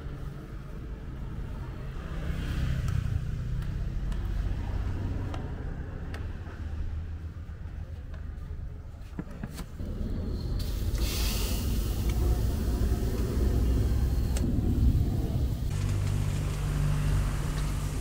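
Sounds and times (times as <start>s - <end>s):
wok burner rumbling: 9.8s - 18.0s.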